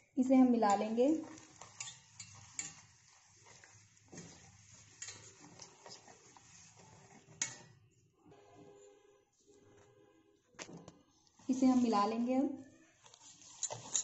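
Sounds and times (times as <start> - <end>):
whisk clinking in steel bowl: 0.7 - 5.4.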